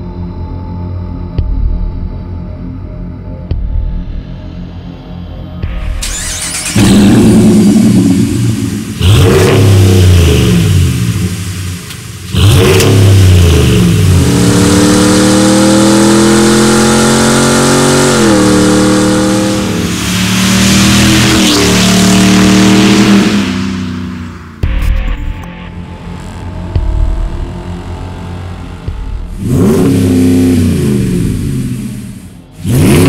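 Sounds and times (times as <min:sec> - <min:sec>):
engine accelerating hard: 0:05.6 - 0:33.0
engine revving: 0:05.6 - 0:33.0.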